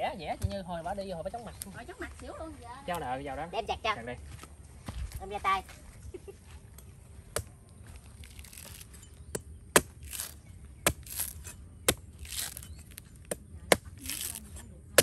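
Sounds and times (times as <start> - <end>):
blade chopping coconut: 8.4 - 15.0.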